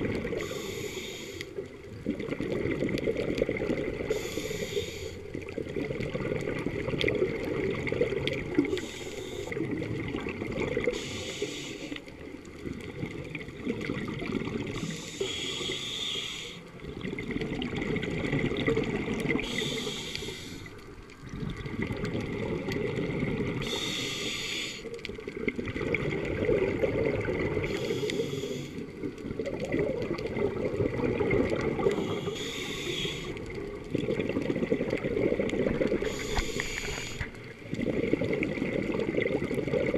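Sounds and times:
exhaled bubbles burbling: 0:00.0 - 0:00.7, 0:01.5 - 0:15.7, 0:16.7 - 0:24.1, 0:24.8 - 0:39.9
regulator inhale hiss: 0:00.3 - 0:01.6, 0:04.1 - 0:05.3, 0:08.6 - 0:09.6, 0:10.9 - 0:12.1, 0:14.7 - 0:16.8, 0:19.4 - 0:20.8, 0:23.6 - 0:25.0, 0:27.6 - 0:28.9, 0:31.8 - 0:33.6, 0:36.0 - 0:37.5.

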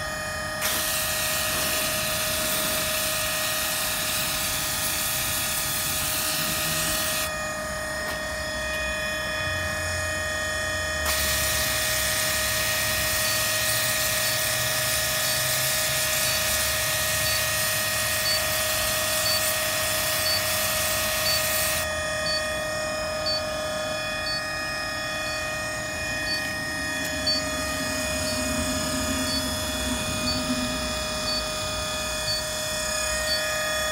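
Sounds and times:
steady whine: 0:00.0 - 0:33.9
pressure washer spray hiss: 0:00.6 - 0:07.3, 0:11.1 - 0:21.8.

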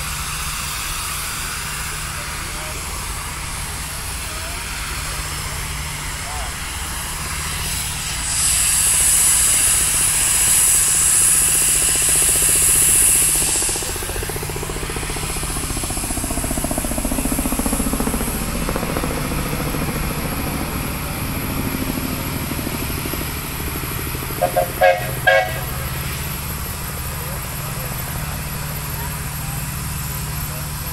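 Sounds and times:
steam hissing: 0:00.0 - 0:20.0, 0:20.6 - 0:30.9
low engine running sound: 0:00.0 - 0:30.9
steam whistle toots: 0:24.4 - 0:25.8.

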